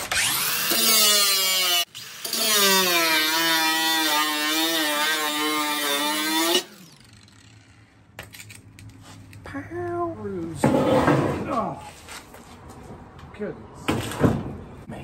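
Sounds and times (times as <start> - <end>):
angle grinder cutting steel: 0.0 - 7.8.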